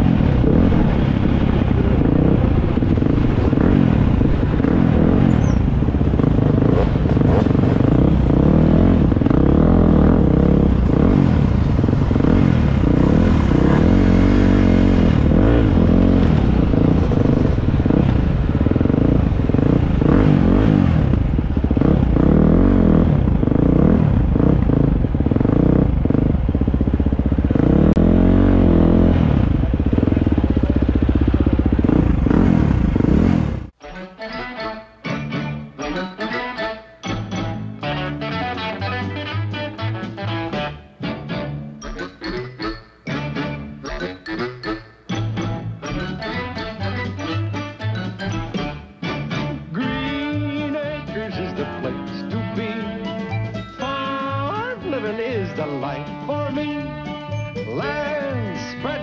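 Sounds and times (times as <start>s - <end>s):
engine clatter: 0.0s - 33.8s
motorbike engine revving: 0.0s - 33.8s.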